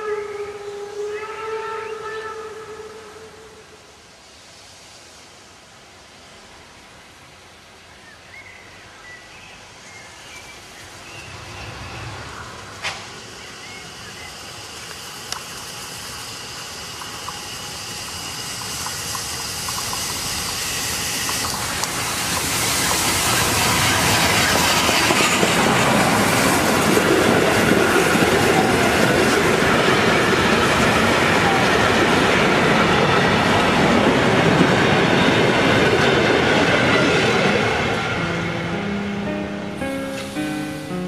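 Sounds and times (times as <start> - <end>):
train rumble and wheel clatter: 9.7 - 40.9.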